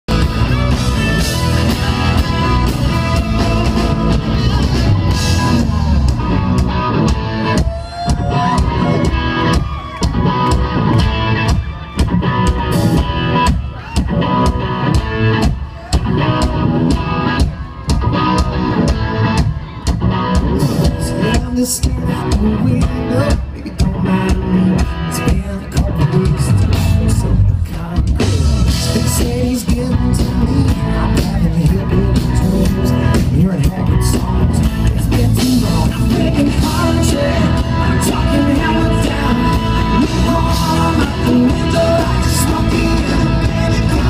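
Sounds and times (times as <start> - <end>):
drum beat: 0.1 - 26.9
electric guitars: 0.1 - 44.0.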